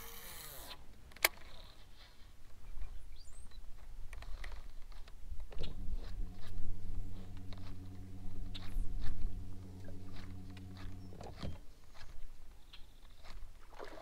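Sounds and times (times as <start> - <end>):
low motor hum: 5.6 - 11.6.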